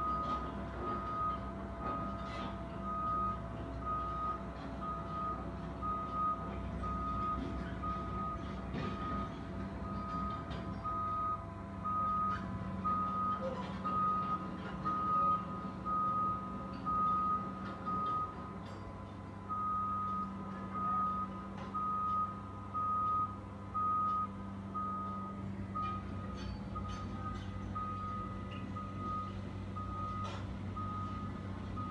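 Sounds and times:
backup alarm beeping: 0:26.8 - 0:31.9.

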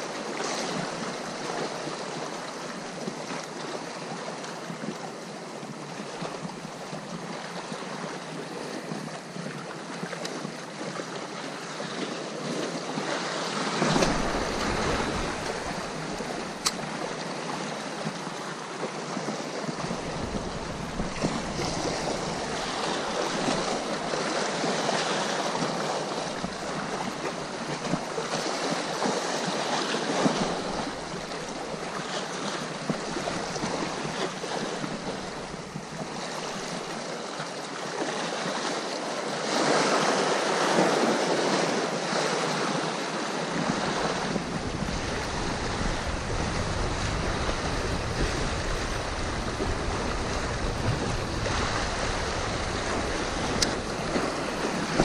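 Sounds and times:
sea waves washing: 0:00.0 - 0:55.0
wind rumbling on microphone: 0:11.8 - 0:37.2, 0:43.4 - 0:55.0.

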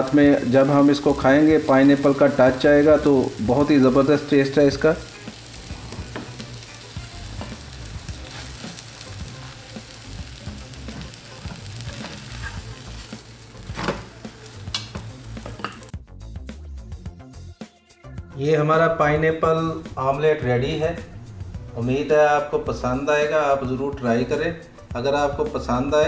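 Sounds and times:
omelette sizzling in a pan: 0:00.0 - 0:15.9.

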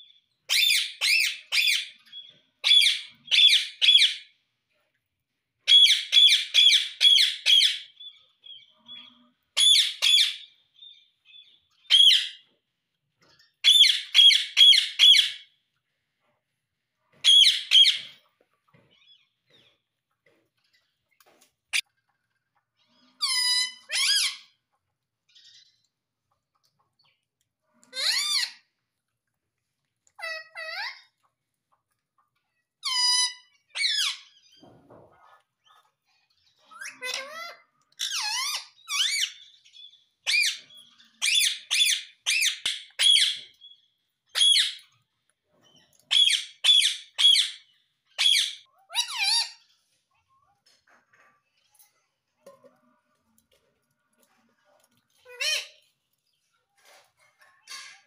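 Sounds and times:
parrot shrill calls: 0:46.1 - 0:49.6.

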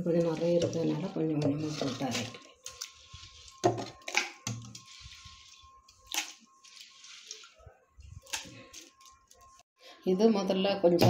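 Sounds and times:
hand swishing rice in water: 0:06.2 - 0:07.6.

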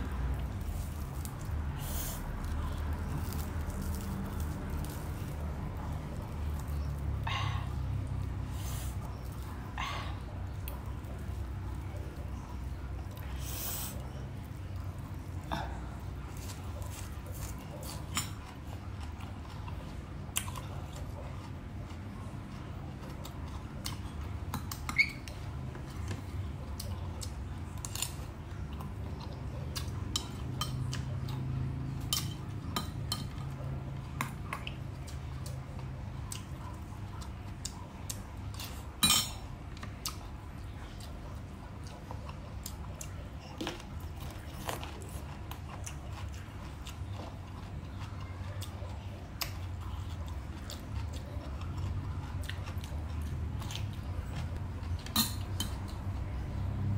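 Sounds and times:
low steady hum: 0:00.0 - 0:56.9
crisp stems bitten and chewed: 0:00.1 - 0:07.2.

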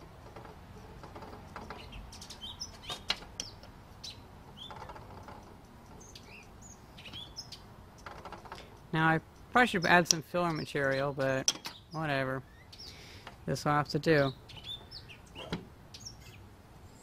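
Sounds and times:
faint bird chirps: 0:14.2 - 0:17.0.

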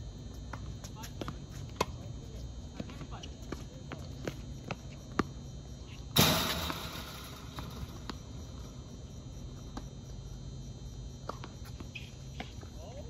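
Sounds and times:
loud crash: 0:06.2 - 0:08.0
tennis ball strike: 0:06.2 - 0:08.5.

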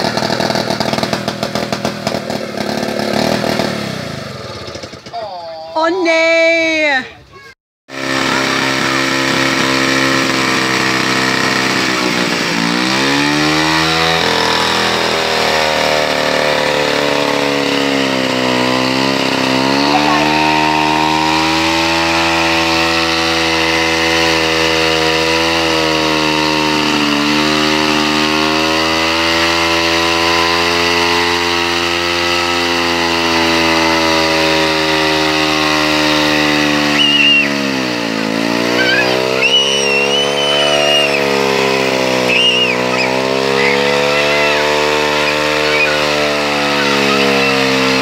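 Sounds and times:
chainsaw cutting through log: 0:00.0 - 0:04.9, 0:07.9 - 0:48.0
short high squeaks: 0:36.9 - 0:37.7, 0:38.6 - 0:48.0.

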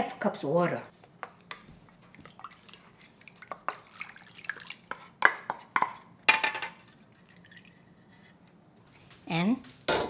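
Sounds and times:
liquid pouring into pan: 0:02.1 - 0:05.2, 0:06.6 - 0:08.2
kitchenware clinking: 0:05.2 - 0:07.1.

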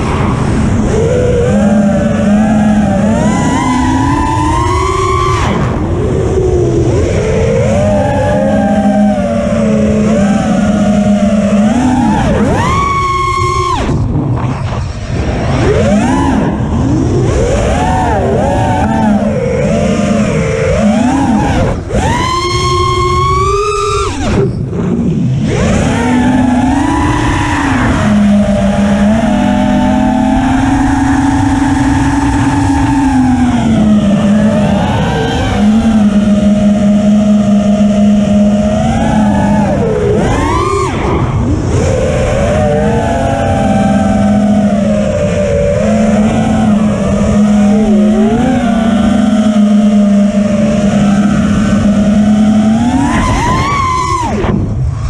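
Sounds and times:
quadcopter motors whining: 0:00.0 - 0:55.0
rush of air: 0:13.4 - 0:19.5, 0:53.3 - 0:55.0.

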